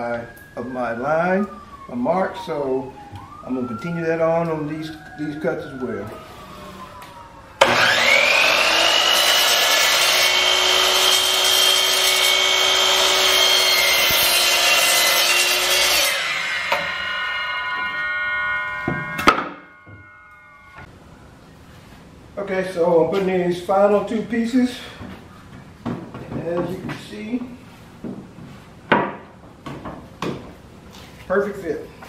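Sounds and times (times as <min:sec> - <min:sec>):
miter saw cutting board: 0:07.6 - 0:20.9.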